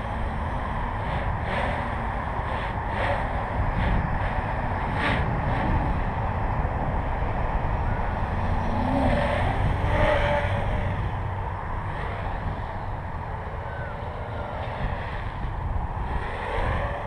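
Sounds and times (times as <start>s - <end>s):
quadcopter motors whining: 0.0s - 17.0s
wind on microphone: 0.0s - 17.0s.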